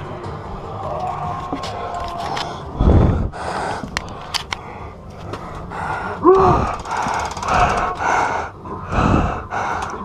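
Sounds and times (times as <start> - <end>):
heavy rapid breathing: 2.2 - 10.0
person gasping: 2.7 - 4.0, 4.6 - 10.0
rapid rattle of ticks: 6.7 - 8.2.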